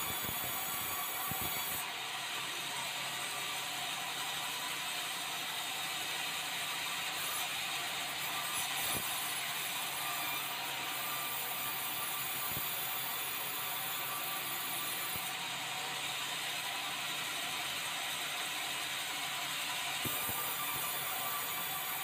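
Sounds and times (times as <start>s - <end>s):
band saw sawing timber: 0.0s - 1.8s, 20.0s - 22.0s.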